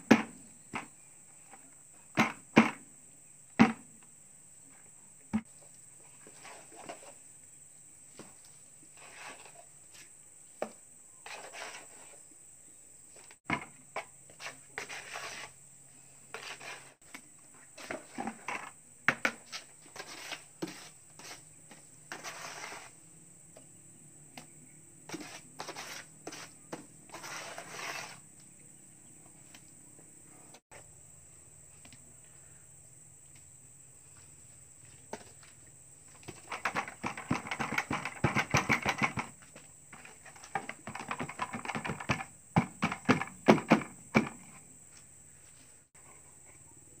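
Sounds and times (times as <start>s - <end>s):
trowel scraping wet mortar: 8.9s - 9.6s, 11.2s - 12.2s, 14.4s - 15.6s, 16.3s - 17.0s, 19.5s - 21.5s, 22.1s - 23.0s, 25.1s - 28.2s.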